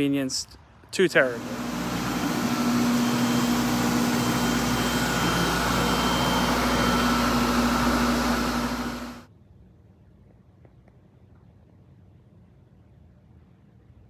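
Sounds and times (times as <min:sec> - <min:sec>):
fan noise: 0:01.2 - 0:09.3
low hum: 0:01.4 - 0:09.3.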